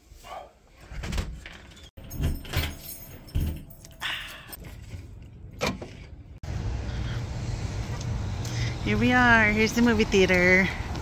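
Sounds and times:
keys jangling: 0:02.0 - 0:04.6.

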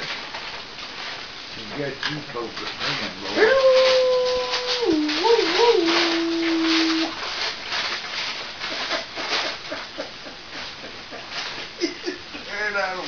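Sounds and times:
man howling like a dog: 0:03.3 - 0:07.2.

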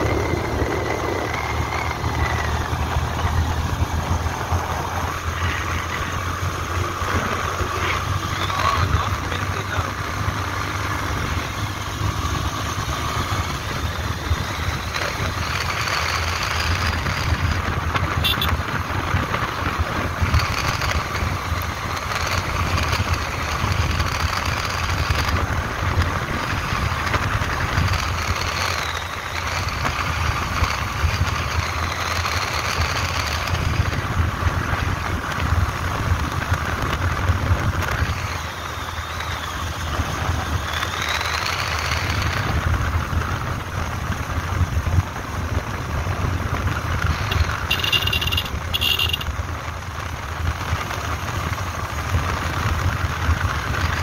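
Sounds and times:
vehicle engine running: 0:00.0 - 0:54.0
wind rumble on microphone: 0:33.4 - 0:38.4, 0:42.0 - 0:47.4.

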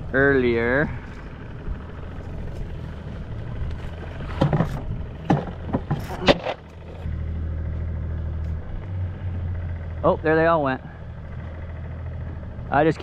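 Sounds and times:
outboard motor idling: 0:00.0 - 0:13.0
short knocks and rattles: 0:04.1 - 0:07.0.

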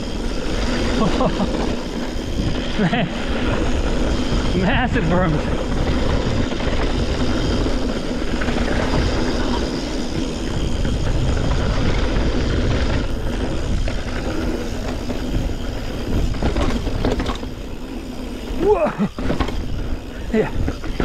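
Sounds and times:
bike frame rattling: 0:00.0 - 0:21.0
tyres rolling over gravel: 0:00.0 - 0:21.0
wind buffeting microphone: 0:00.0 - 0:21.0.

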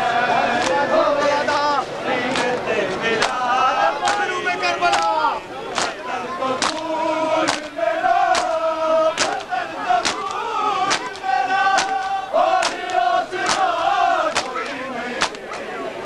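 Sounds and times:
men chanting in unison: 0:00.0 - 0:16.0
hands slapping bare chests: 0:03.2 - 0:03.4, 0:04.0 - 0:04.2, 0:04.9 - 0:05.1, 0:05.8 - 0:06.0, 0:06.6 - 0:06.9, 0:07.5 - 0:15.7.

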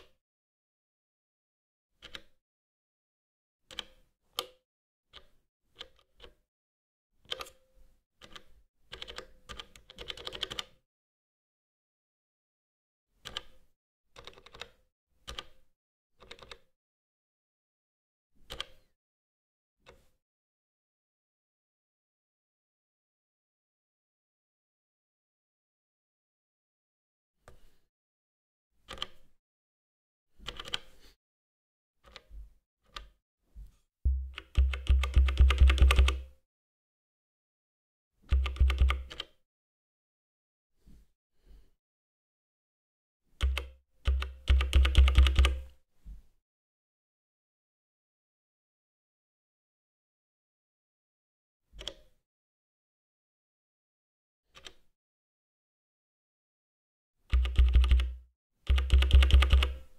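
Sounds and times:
synth bass notes retriggered: 0:34.1 - 0:34.4.

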